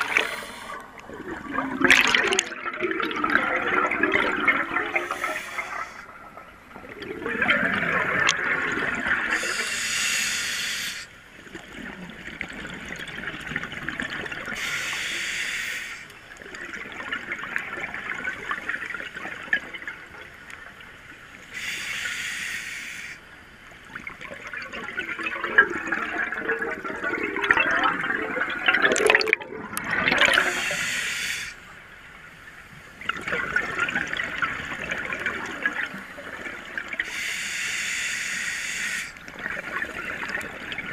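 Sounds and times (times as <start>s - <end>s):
regulator inhalation hiss: 0.0s - 0.8s, 4.9s - 6.1s, 9.3s - 11.2s, 14.6s - 16.1s, 21.5s - 23.2s, 30.3s - 31.8s, 37.0s - 39.2s
bubbling exhaled air underwater: 0.0s - 9.7s, 24.0s - 31.0s.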